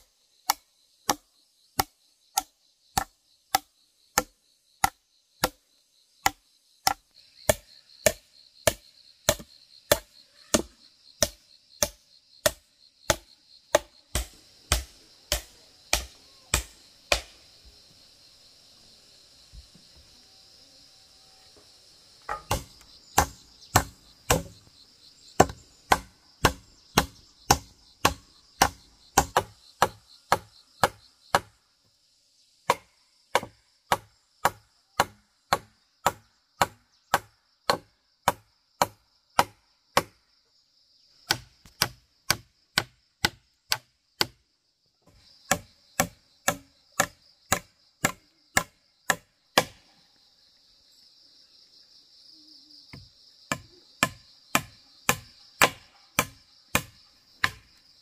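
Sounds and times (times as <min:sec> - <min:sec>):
hammer on wooden poles: 0:00.0 - 0:05.6, 0:06.2 - 0:17.4, 0:22.3 - 0:24.6, 0:25.4 - 0:31.5, 0:32.7 - 0:40.2, 0:41.2 - 0:44.4, 0:45.1 - 0:49.8, 0:52.9 - 0:57.7
high insect drone: 0:00.0 - 0:58.0.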